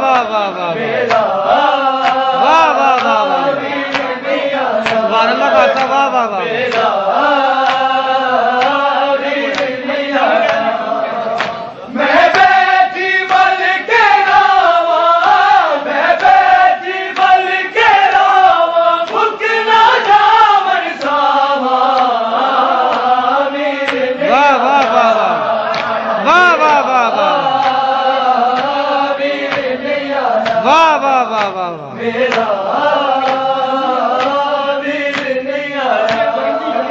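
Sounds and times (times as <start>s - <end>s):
men chanting in unison: 0.0s - 36.9s
sharp slaps: 1.0s - 4.2s, 4.8s - 5.1s, 6.6s - 7.0s, 7.6s - 9.8s, 11.3s - 12.6s, 15.2s - 18.4s, 19.0s - 20.3s, 21.0s - 24.1s, 25.7s - 26.0s, 28.5s - 29.8s, 30.4s - 35.4s, 36.0s - 36.4s.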